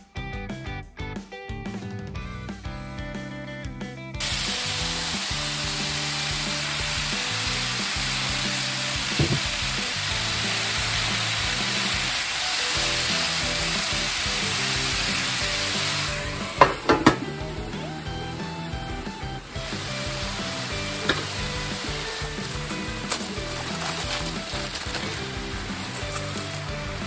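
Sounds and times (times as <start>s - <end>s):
meat sizzling on hot plate: 4.2s - 27.0s
metal lid knocking: 16.6s - 17.4s.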